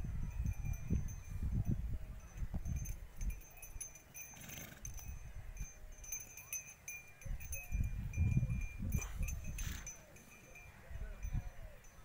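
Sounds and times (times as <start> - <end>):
wind rumbling on microphone: 0.0 - 3.9, 7.2 - 9.9.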